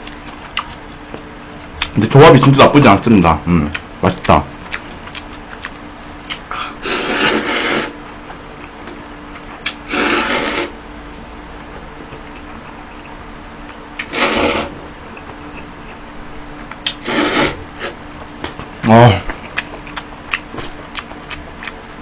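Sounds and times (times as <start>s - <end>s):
faint steady hum: 0.0s - 22.0s
person slurping noodles: 6.8s - 8.0s, 9.8s - 10.8s, 14.0s - 14.8s, 17.0s - 18.0s.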